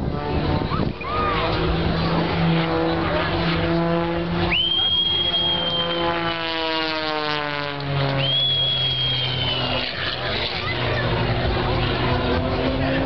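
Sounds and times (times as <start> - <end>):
propeller plane engine drone: 0.0 - 13.0
high thin whistle tone: 4.5 - 6.4, 8.2 - 10.0.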